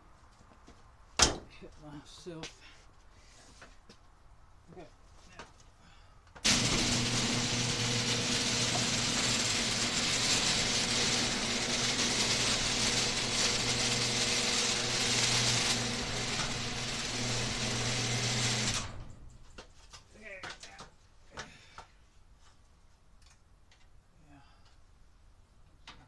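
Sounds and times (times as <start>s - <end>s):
garage door opener humming and rattling: 6.4s - 19.4s.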